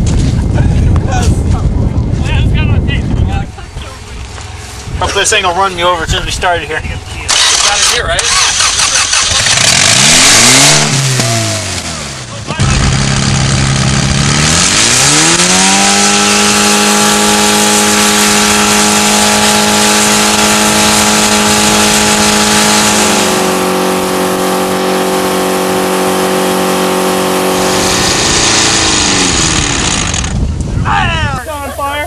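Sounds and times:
car engine revving high: 0:07.3 - 0:30.5.

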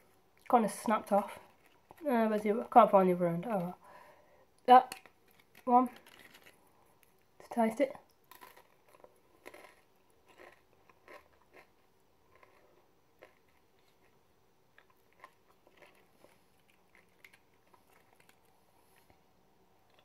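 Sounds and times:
chip crunching: 0:04.9 - 0:07.3, 0:08.1 - 0:19.2.

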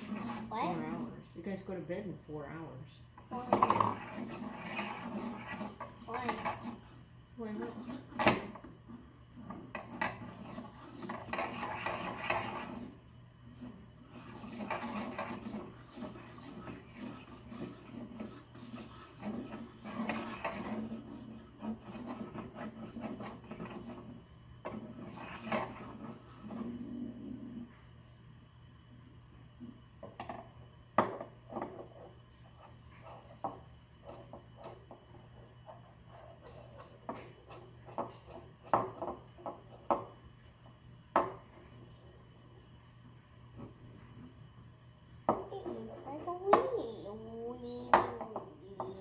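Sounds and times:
fidget spinner scraping on wood: 0:00.0 - 0:02.1, 0:03.2 - 0:27.7, 0:29.6 - 0:42.1.

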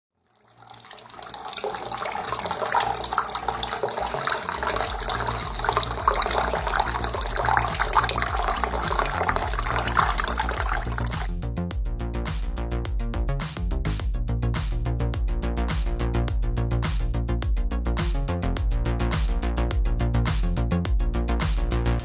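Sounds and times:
fountain water splashing into basin: 0:00.2 - 0:11.3.

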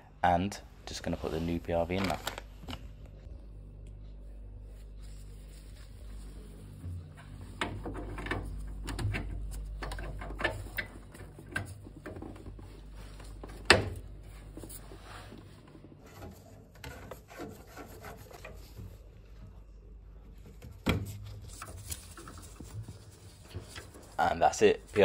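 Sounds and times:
gloved hands rubbing and scraping: 0:04.6 - 0:07.5, 0:21.3 - 0:25.0.

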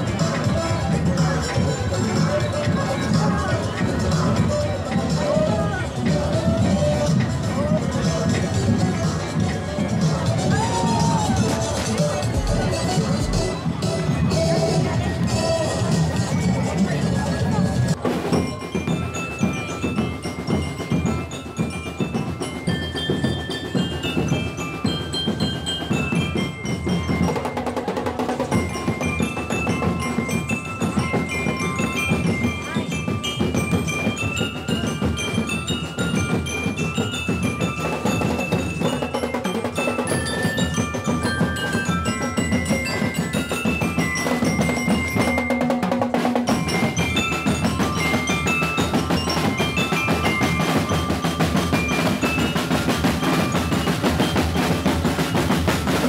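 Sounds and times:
bell lyres playing melody: 0:00.0 - 0:56.0
bass drums beating: 0:02.7 - 0:15.9.

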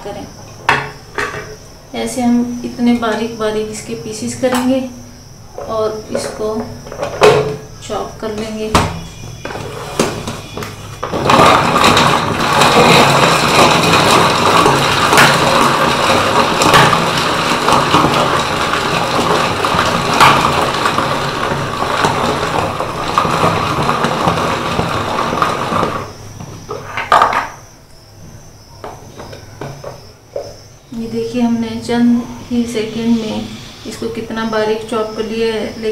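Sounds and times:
vegetable chopper clattering: 0:08.8 - 0:27.6.

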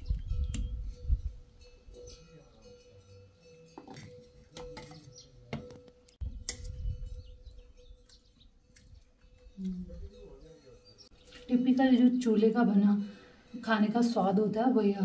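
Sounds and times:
small birds chirping: 0:04.8 - 0:12.8.

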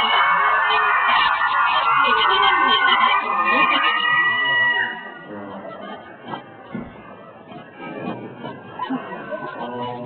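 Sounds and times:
audience screaming and cheering: 0:00.0 - 0:06.3.

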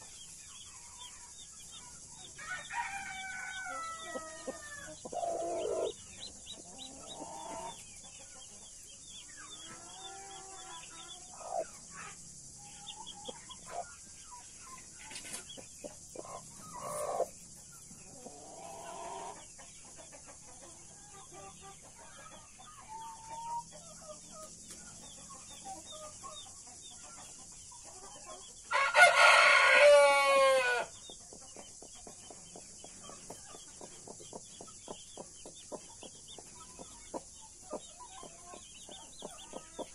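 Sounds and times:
chicks peeping: 0:00.0 - 0:39.9
rooster crowing: 0:02.4 - 0:05.9, 0:28.7 - 0:30.9
hen clucking: 0:03.7 - 0:07.8, 0:15.0 - 0:17.3.

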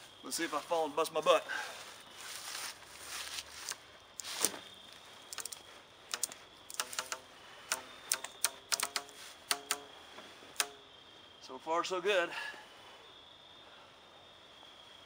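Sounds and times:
dry leaves rustling underfoot: 0:00.0 - 0:06.6
hammock ticking and creaking: 0:02.6 - 0:11.0.

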